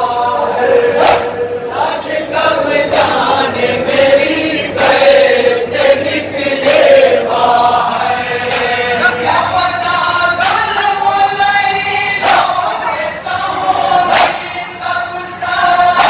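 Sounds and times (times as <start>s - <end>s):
men chanting a lament: 0.0s - 16.0s
chest-beating slaps: 1.0s - 1.4s.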